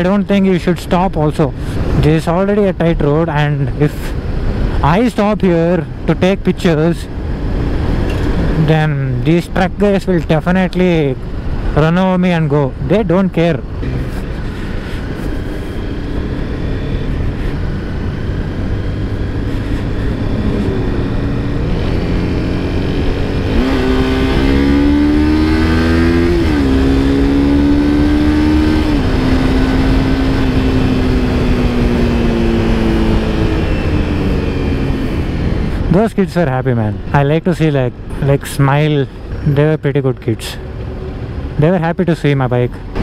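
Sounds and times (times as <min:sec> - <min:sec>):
wind and road rush: 0:00.0 - 0:43.0
motorcycle engine accelerating: 0:13.7 - 0:36.0.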